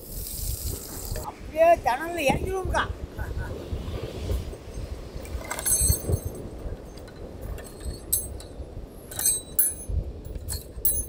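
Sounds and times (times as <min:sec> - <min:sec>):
light clinks with high ringing: 0:05.5 - 0:11.0.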